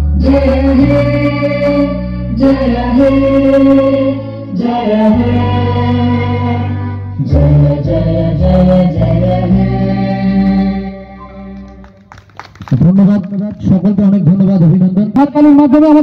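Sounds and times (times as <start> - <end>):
chanted melody: 0.0 - 12.1
held bass notes: 0.0 - 12.1.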